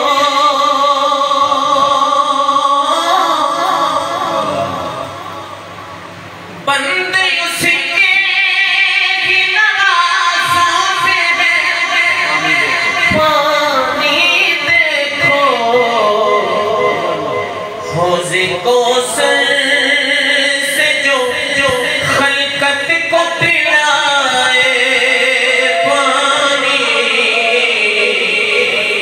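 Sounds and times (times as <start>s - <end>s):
man singing unaccompanied lament: 6.9s - 29.0s.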